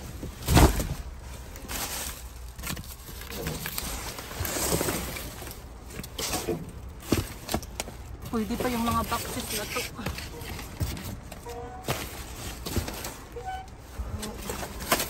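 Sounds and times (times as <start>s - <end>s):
plastic and cardboard rustling: 0.0s - 15.0s.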